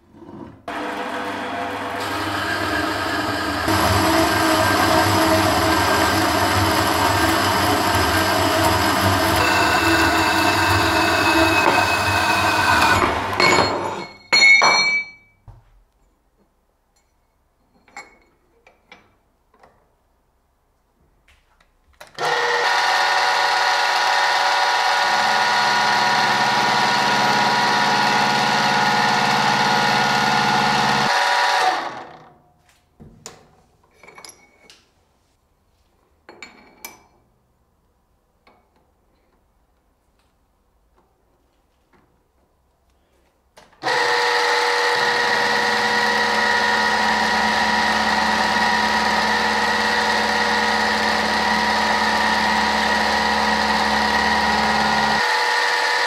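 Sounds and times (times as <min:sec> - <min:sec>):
milling machine whining: 0:00.7 - 0:13.5, 0:22.2 - 0:32.0, 0:43.8 - 0:56.0
band saw cutting steel: 0:00.7 - 0:13.6, 0:22.2 - 0:32.0, 0:43.8 - 0:56.0
metal clank: 0:12.8 - 0:15.3.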